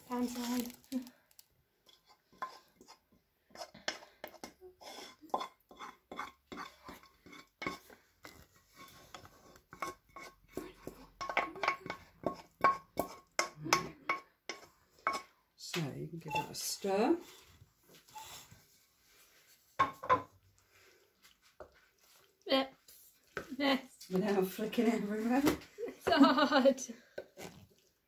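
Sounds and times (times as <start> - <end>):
utensil scraping metal saucepan: 1.8 - 15.4, 16.2 - 18.6.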